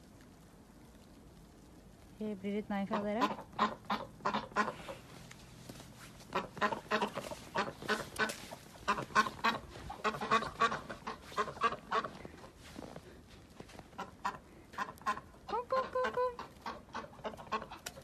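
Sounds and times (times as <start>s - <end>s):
ducks quacking: 2.9s - 5.1s, 6.3s - 12.6s, 13.9s - 18.0s.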